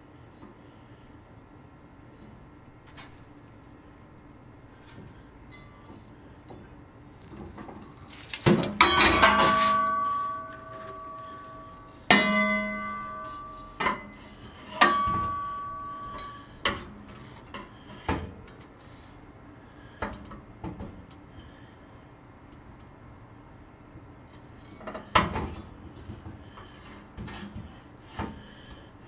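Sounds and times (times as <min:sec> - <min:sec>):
metal objects clanking: 0:08.1 - 0:17.7
bell-like metallic ringing: 0:08.8 - 0:16.6.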